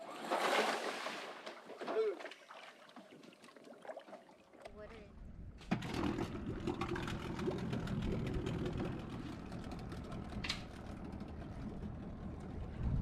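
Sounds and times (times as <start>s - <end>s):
outboard motor idling: 5.7s - 13.0s.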